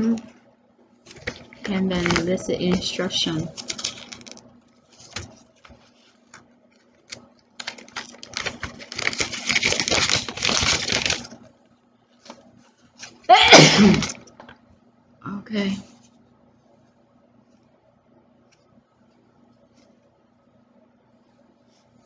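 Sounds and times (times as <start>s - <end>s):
paper leaflet rustling: 1.0s - 11.5s, 12.2s - 13.3s.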